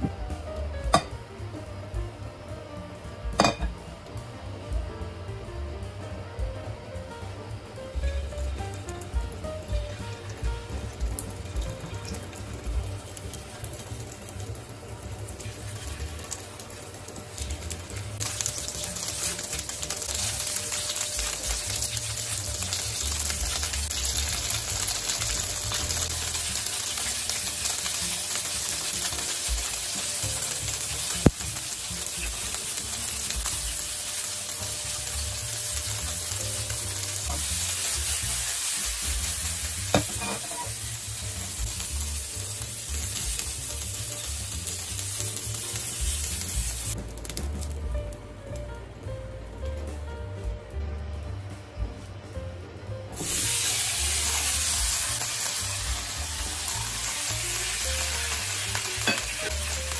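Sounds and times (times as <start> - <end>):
fish sizzling in frying pan: 7.9 - 48.1, 53.1 - 59.9.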